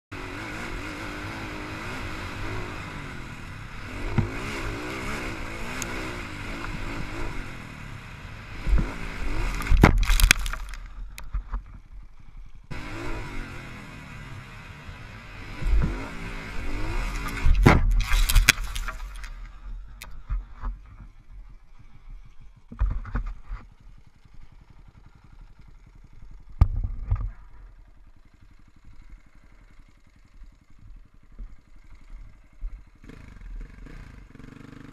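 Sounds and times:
dirt bike engine: 0.1s - 34.9s
crash thuds and clatter: 8.6s - 11.8s, 16.8s - 19.6s
engine idling: 14.1s - 34.4s.

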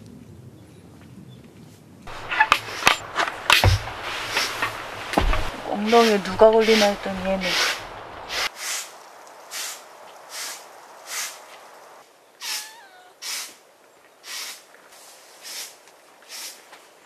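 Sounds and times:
broom sweeping: 2.1s - 11.6s, 14.3s - 16.8s
cat meowing: 12.4s - 13.2s.

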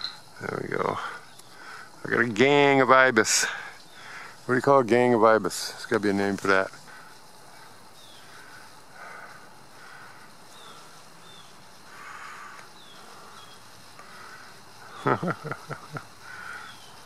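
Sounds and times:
faint high falling chirps: 0.0s - 0.3s.

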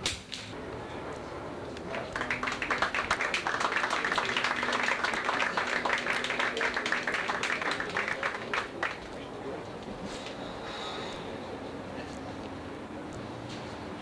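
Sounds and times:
crowd applauding: 1.8s - 9.3s.

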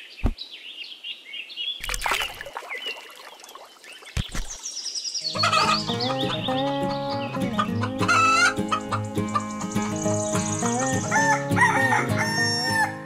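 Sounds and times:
hens clucking: 5.3s - 9.9s
light background music: 5.3s - 13.0s
rooster crowing: 11.1s - 13.0s.

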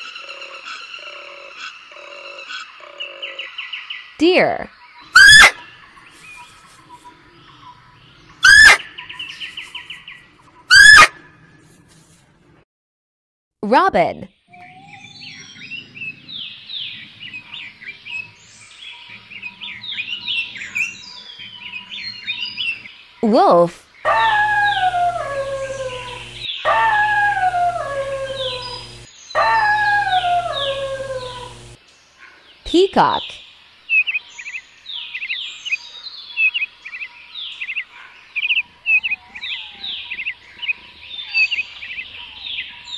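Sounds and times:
elk squealing calls: 5.2s - 5.6s, 8.4s - 8.8s, 10.7s - 11.1s, 24.1s - 31.8s
wolf howling: 5.2s - 5.6s, 8.4s - 8.9s, 10.7s - 11.2s, 14.5s - 15.8s, 24.1s - 31.8s
faint rapid trill: 24.1s - 31.8s.

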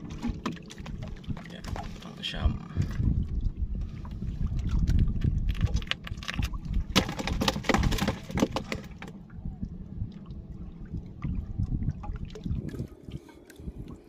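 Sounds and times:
knocks and scrapes in boat: 0.0s - 3.2s, 3.8s - 9.2s
wind on microphone: 0.0s - 14.0s.

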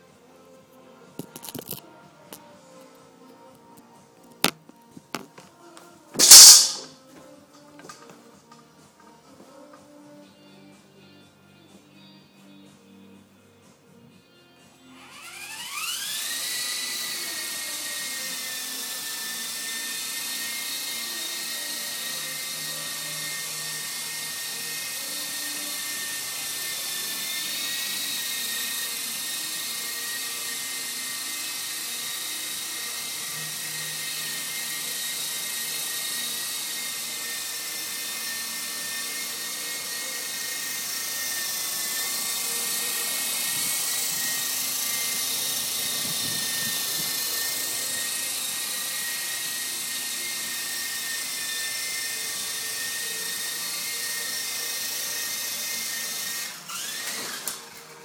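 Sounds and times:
toy helicopter rotor whine: 6.2s - 6.9s, 14.9s - 58.0s.

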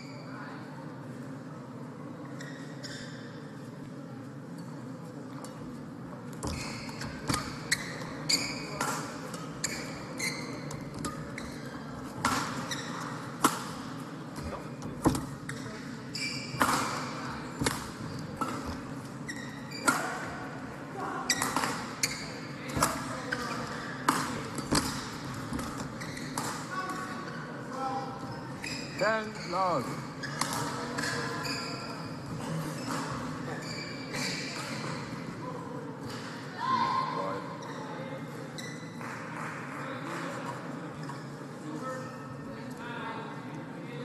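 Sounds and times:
shoes squeaking on court floor: 2.3s - 3.5s, 6.4s - 20.3s, 21.3s - 26.9s, 28.2s - 35.2s, 37.6s - 39.0s.

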